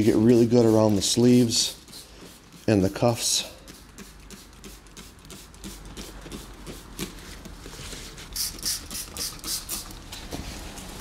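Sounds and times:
spray bottle squirts: 3.6s - 7.1s, 8.4s - 10.0s
spray trigger clicks: 8.4s - 10.0s.

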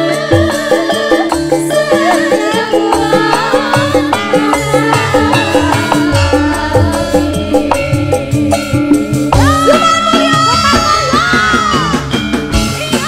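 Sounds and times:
loud music with steady beat: 0.0s - 13.0s.

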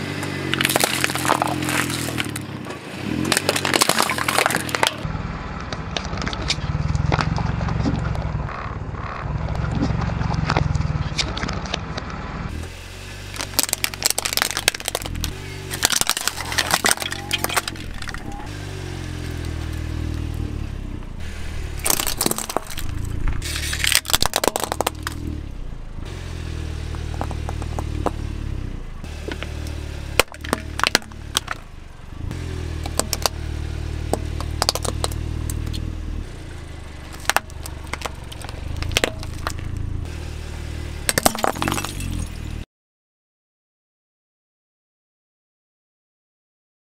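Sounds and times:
car engine and tyre rumble: 0.0s - 42.7s
plastic toys crushing: 0.5s - 2.5s, 3.2s - 5.0s, 13.3s - 18.4s, 21.8s - 25.3s, 30.2s - 31.6s, 32.8s - 33.3s, 34.1s - 35.8s, 37.0s - 39.8s, 41.1s - 42.4s.

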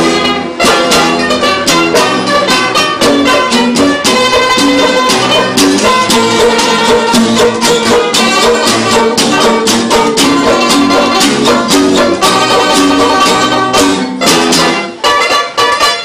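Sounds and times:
string ensemble strumming: 0.0s - 16.0s.

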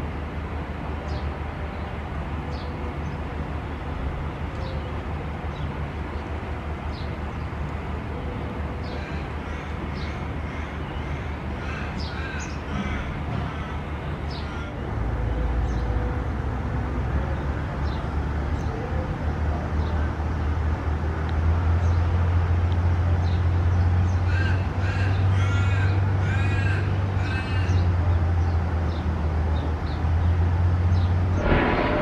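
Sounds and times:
low rumble: 31.4s - 32.0s.

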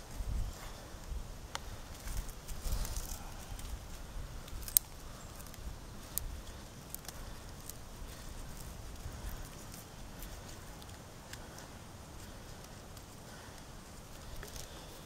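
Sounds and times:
wood snapping and clicking: 4.4s - 14.8s.

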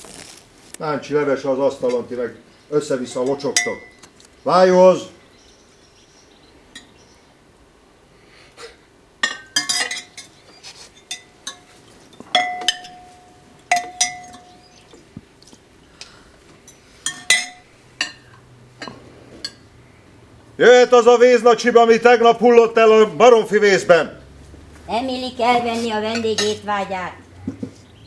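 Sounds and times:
metal spoon clinking on plate: 9.2s - 10.4s, 11.0s - 14.7s, 16.7s - 19.6s.

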